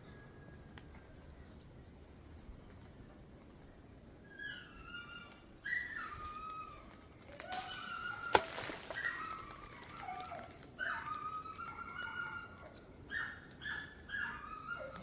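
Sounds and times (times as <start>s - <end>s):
dog whining and yelping: 4.4s - 15.0s
sharp crack: 7.2s - 10.0s.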